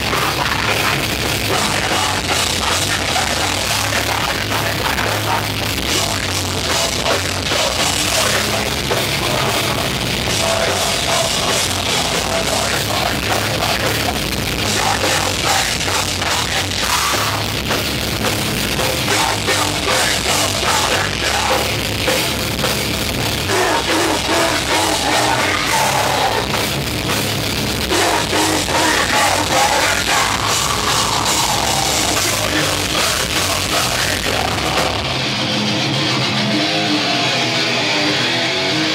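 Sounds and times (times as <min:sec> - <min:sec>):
distorted guitars: 0:00.0 - 0:38.9
drum kit: 0:00.0 - 0:38.9
shouted vocals: 0:23.4 - 0:26.6, 0:27.9 - 0:35.2.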